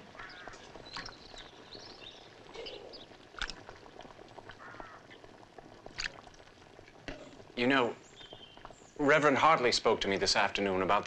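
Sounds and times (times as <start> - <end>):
short bird calls: 0.1 - 3.1.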